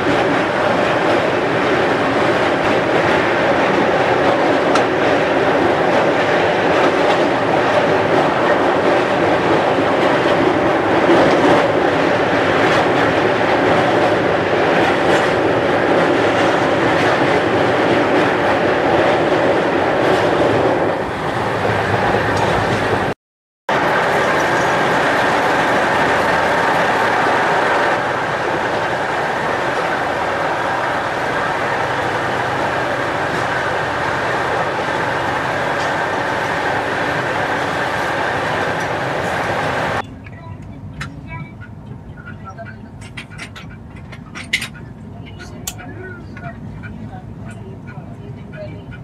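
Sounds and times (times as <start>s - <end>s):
train wheels on rails: 0.0s - 49.0s.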